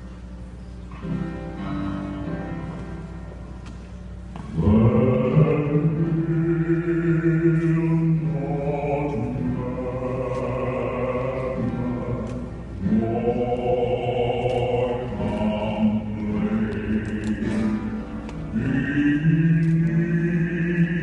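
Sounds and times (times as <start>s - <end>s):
choir singing a hymn: 4.6s - 21.0s.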